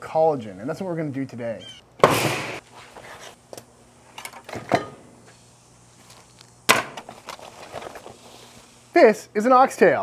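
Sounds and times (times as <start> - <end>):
canvas rustling: 7.0 - 8.8.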